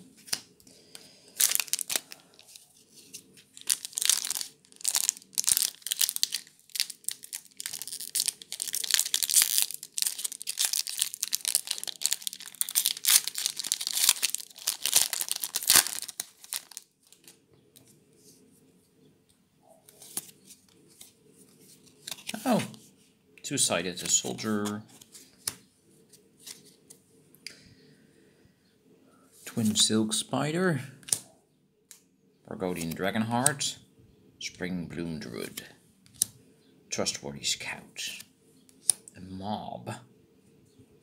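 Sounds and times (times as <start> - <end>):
foil wrapper tearing and crinkling: 1.4 - 2.6, 3.5 - 17.3.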